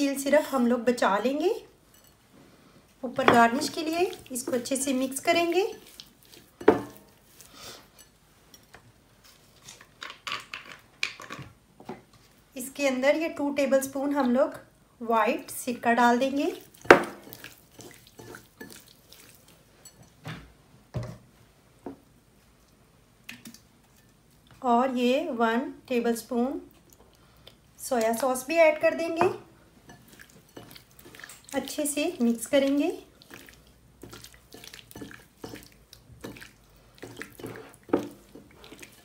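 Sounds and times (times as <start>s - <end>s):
hand mixing wet chicken: 3.0s - 9.7s, 15.3s - 20.0s, 26.8s - 39.0s.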